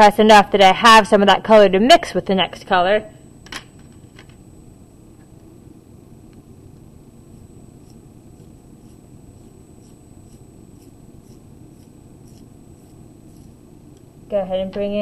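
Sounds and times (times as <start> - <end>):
low room rumble: 0.0 - 15.0
pencil scratching on paper: 7.3 - 13.6.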